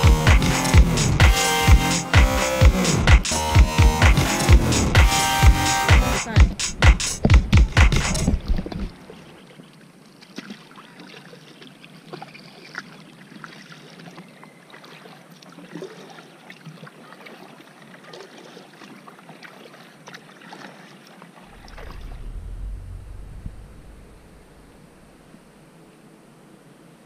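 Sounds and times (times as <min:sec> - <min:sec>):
paddle splashing in water: 0:06.6 - 0:22.3.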